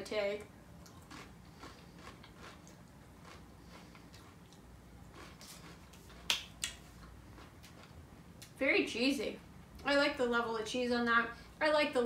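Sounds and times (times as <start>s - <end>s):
crunching of chips being chewed: 0.8s - 6.3s, 7.0s - 8.0s.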